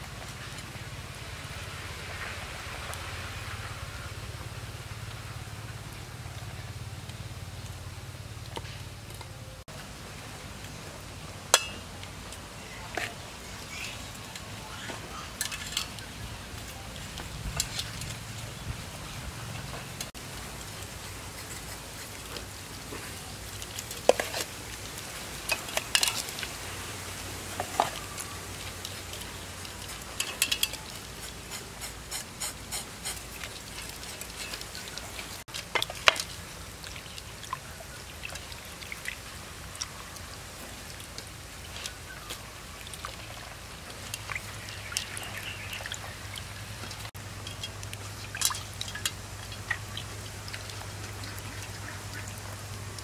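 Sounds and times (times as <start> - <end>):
clinks and scrapes on metal pot: 11.5 - 11.9, 14.8 - 16.0, 25.5 - 26.4, 29.8 - 33.2
wet rubbing of fish in water: 20.8 - 23.2, 29.6 - 35.4.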